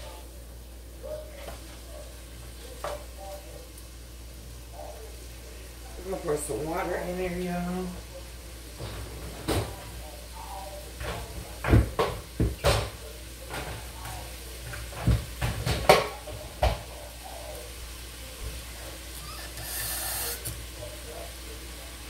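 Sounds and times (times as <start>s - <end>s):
kitchen knocks and bumps: 8.8s - 9.8s, 11.0s - 13.9s, 14.6s - 16.9s.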